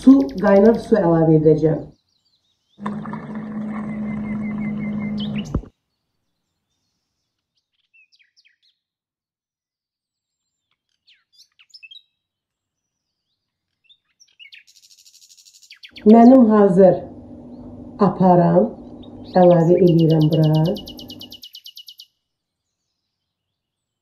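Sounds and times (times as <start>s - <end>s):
hot-water dispenser motor hum: 2.8s - 5.7s, 16.0s - 21.4s
faint bird chirps: 10.5s - 12.2s, 18.9s - 22.1s.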